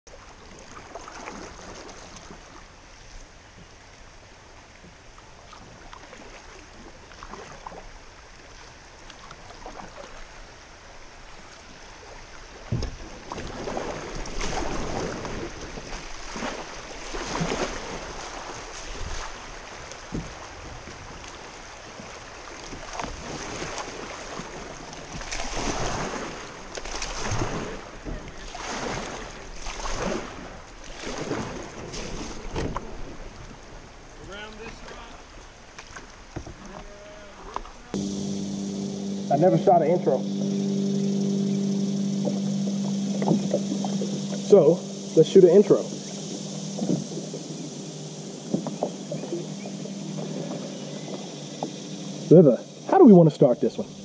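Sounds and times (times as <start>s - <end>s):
paddle dipping in water: 0.1s - 54.0s
water rushing around kayak: 0.1s - 54.0s.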